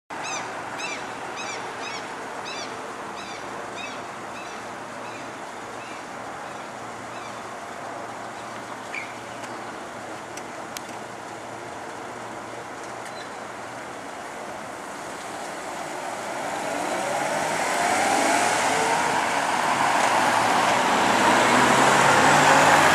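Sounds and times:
cars driving past: 13.7s - 22.9s.

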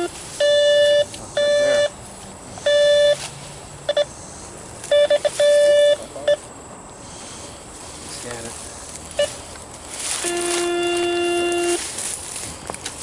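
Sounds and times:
detector beeps: 0.0s - 2.0s, 2.6s - 3.2s, 3.8s - 6.5s, 9.2s - 9.4s, 10.2s - 11.8s
short electronic blips: 0.0s - 2.0s, 2.6s - 3.2s, 4.9s - 6.4s.

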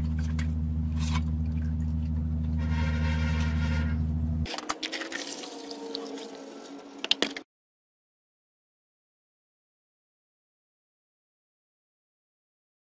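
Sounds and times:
water sloshing and dripping: 0.0s - 2.4s, 4.5s - 7.4s
steady low hum: 0.0s - 4.5s.

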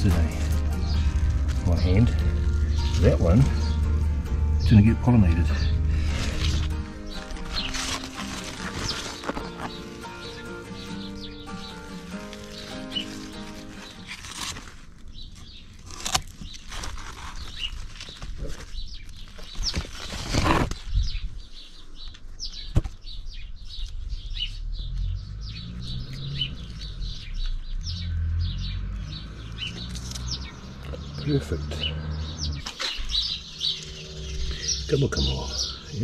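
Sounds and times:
leaves and vines rustling: 0.0s - 22.4s, 23.1s - 36.0s
small birds chirping: 0.0s - 36.0s
stem snapping: 15.8s - 17.3s, 29.8s - 31.0s.

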